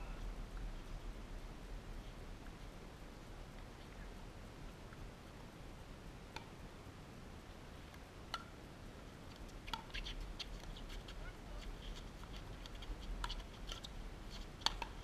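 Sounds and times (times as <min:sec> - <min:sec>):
low wind rumble: 0:00.0 - 0:10.6
pickleball paddle taps: 0:14.6 - 0:15.0.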